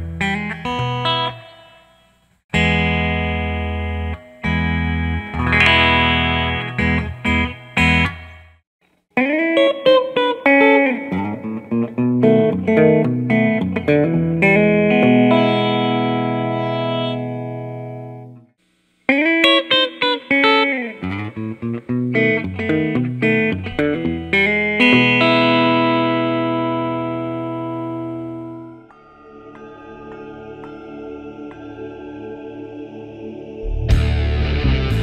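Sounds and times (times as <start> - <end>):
electric guitar blues phrases: 2.6 - 8.3, 9.2 - 18.4, 19.1 - 28.9, 33.6 - 35.0.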